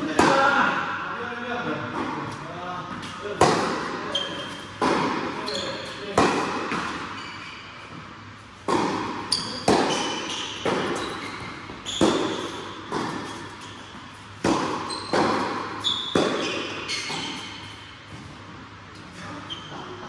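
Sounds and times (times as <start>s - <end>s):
sneakers squeaking: 2.0s - 20.0s
tennis ball hitting racquet strings: 3.4s - 7.1s, 8.6s - 13.8s, 14.4s - 18.3s
tennis ball bouncing: 3.4s - 7.2s, 7.9s - 18.4s.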